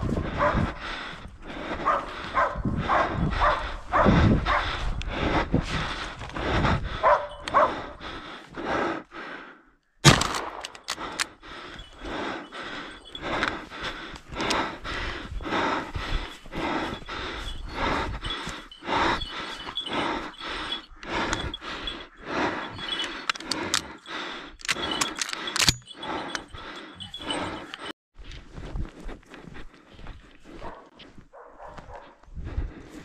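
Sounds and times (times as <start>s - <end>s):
footsteps crunching through snow: 28.2s - 32.2s.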